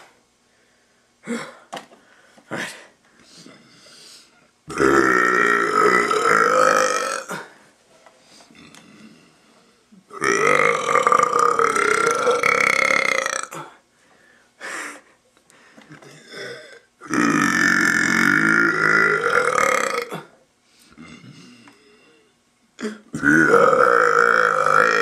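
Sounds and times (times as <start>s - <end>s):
man burping loudly: 4.7s - 7.5s, 8.5s - 9.2s, 10.1s - 13.8s, 16.0s - 20.4s, 22.8s - 25.0s.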